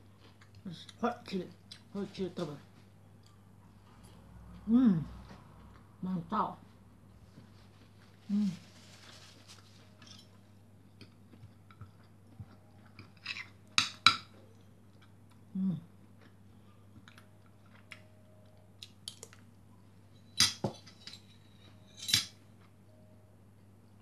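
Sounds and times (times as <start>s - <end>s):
cutlery clinking on ceramic plate: 20.2s - 22.4s.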